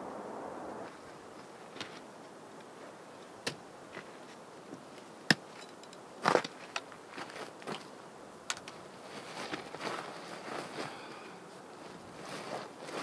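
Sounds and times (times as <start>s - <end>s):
low hiss: 0.0s - 13.0s
boots and poles on rocky ground: 1.6s - 11.2s.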